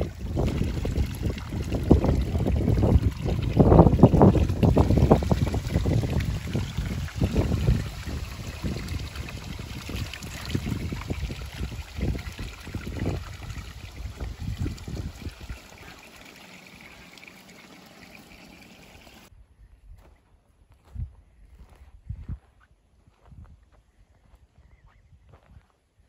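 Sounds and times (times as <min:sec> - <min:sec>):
water splashing by hand: 0:00.0 - 0:19.3
water trickling into stone basin: 0:00.0 - 0:19.3.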